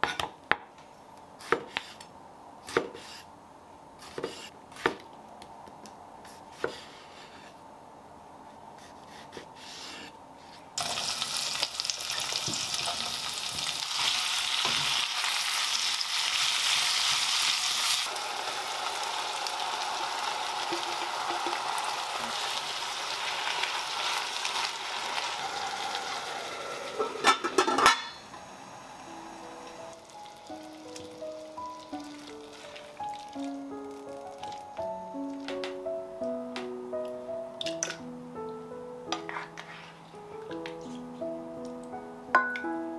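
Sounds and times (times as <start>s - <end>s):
vegetables sizzling in oil: 10.8s - 35.4s
lid clanking on pot: 27.0s - 28.3s.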